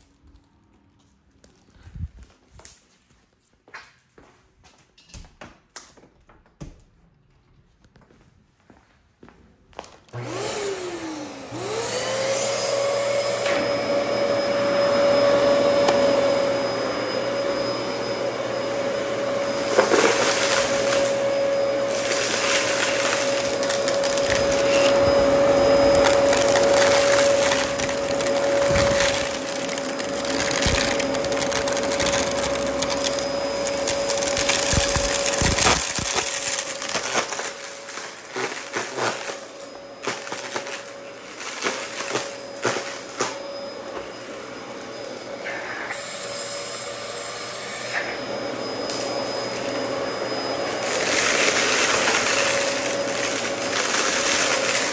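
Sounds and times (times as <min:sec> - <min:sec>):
vacuum cleaner motor whine: 0:10.0 - 0:54.9
brushroll crunching debris: 0:19.6 - 0:43.4.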